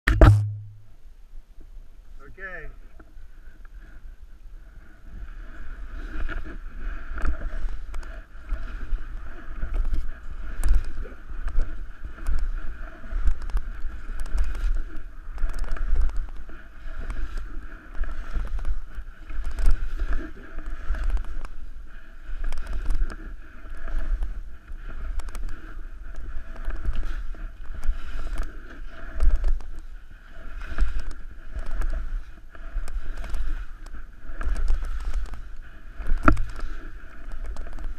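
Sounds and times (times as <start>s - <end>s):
skis scraping over snow: 2.3s - 37.9s.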